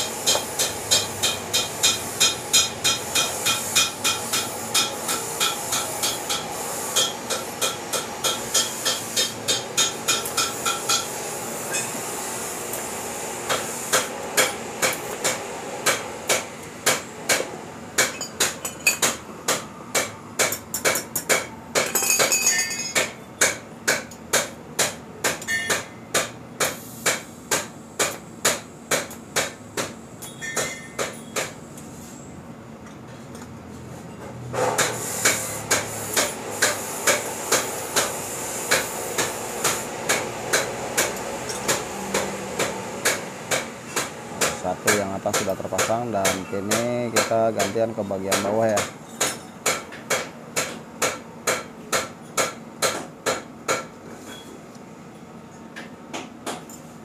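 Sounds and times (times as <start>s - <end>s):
welding hiss: 0.0s - 18.2s, 26.2s - 29.6s, 34.6s - 45.0s.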